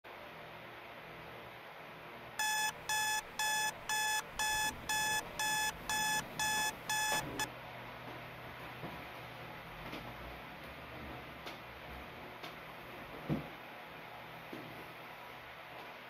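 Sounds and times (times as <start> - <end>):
electronic alarm beeping: 2.4 - 7.5.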